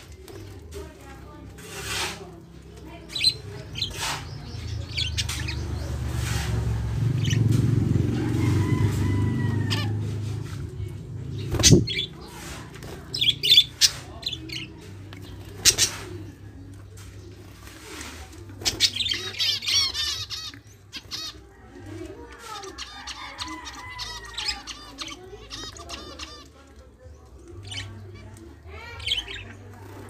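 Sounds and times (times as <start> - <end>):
wings fluttering: 11.4 - 26.4.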